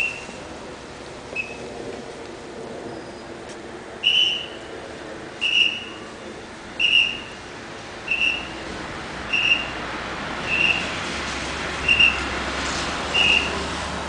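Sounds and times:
whistle blasts: 0:04.0 - 0:04.6, 0:05.4 - 0:06.0, 0:06.8 - 0:07.4, 0:08.1 - 0:08.6, 0:09.3 - 0:09.8, 0:10.4 - 0:10.9, 0:11.8 - 0:12.3, 0:13.1 - 0:13.6.

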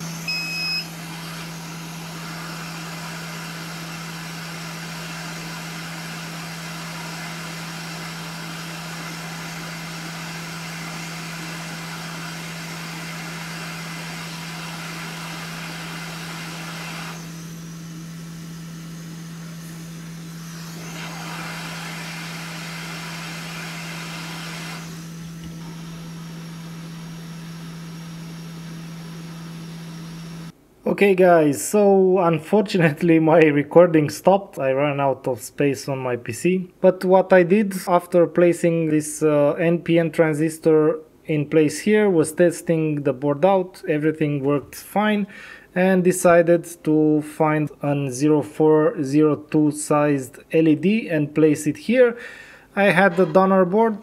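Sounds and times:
electric blower hissing: 0:00.0 - 0:30.6, 0:52.2 - 0:54.0.

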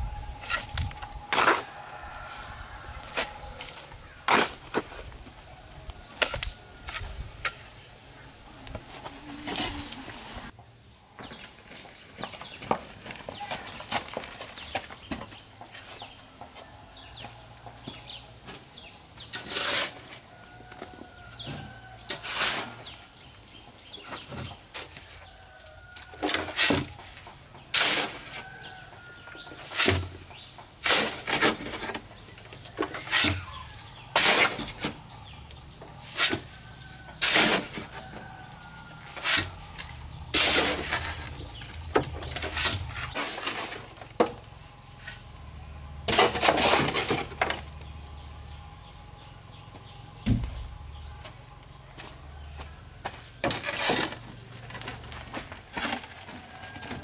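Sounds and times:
shovel scraping sand in wheelbarrow: 0:19.2 - 0:20.2, 0:22.0 - 0:23.0, 0:27.7 - 0:28.7, 0:29.4 - 0:35.4, 0:36.0 - 0:38.0, 0:39.0 - 0:44.0, 0:46.0 - 0:47.5.

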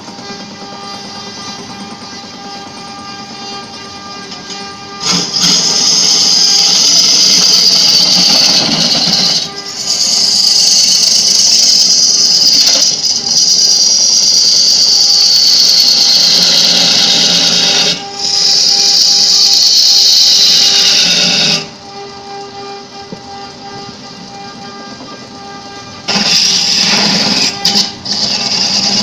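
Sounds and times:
wood lathe humming: 0:00.0 - 0:29.0
turning tool hissing on wood: 0:05.0 - 0:21.8, 0:26.1 - 0:29.0.

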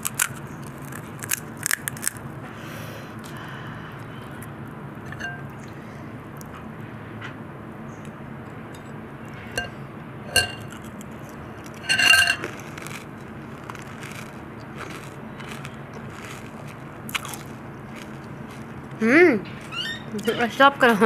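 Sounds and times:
glass bowl clinking: 0:05.1 - 0:05.5, 0:09.5 - 0:10.8, 0:11.8 - 0:12.7.

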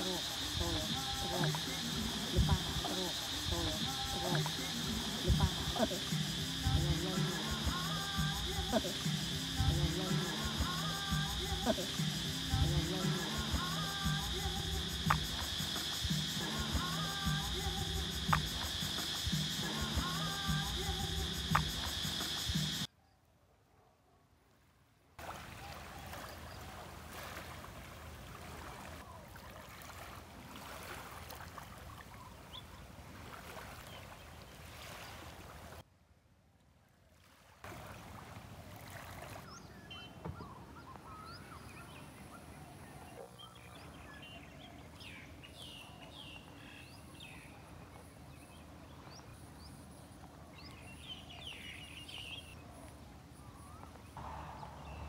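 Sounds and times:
insect buzz: 0:00.0 - 0:22.9
rush of water or wind: 0:25.2 - 0:35.8, 0:37.2 - 0:39.6, 0:54.2 - 0:55.0
birds chirping: 0:39.3 - 0:55.0.

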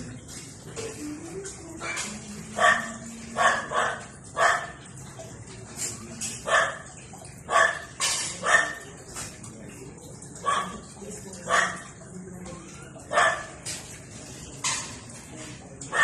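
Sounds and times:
small dog barking: 0:02.6 - 0:04.8, 0:06.4 - 0:06.9, 0:07.5 - 0:08.9, 0:10.4 - 0:10.9, 0:11.5 - 0:11.9, 0:13.1 - 0:13.5.

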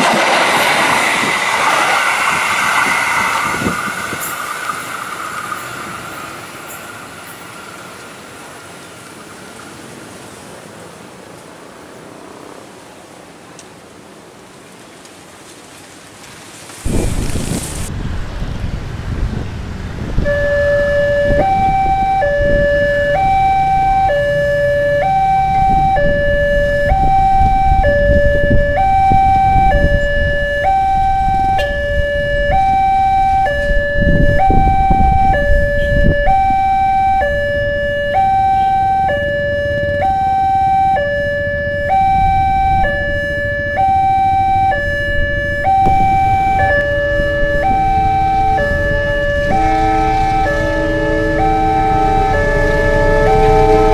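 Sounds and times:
two-tone crossing alarm: 0:00.0 - 0:08.9, 0:20.0 - 0:53.9
road traffic rumble: 0:00.0 - 0:53.9.

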